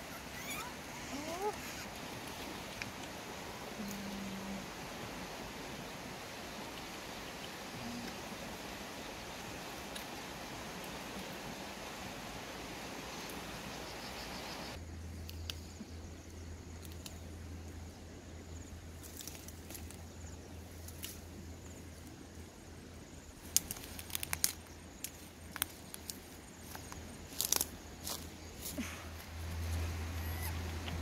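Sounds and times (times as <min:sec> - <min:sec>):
steady hiss: 0:00.0 - 0:14.8
low steady hum: 0:00.0 - 0:31.0
twigs snapping: 0:23.4 - 0:28.3.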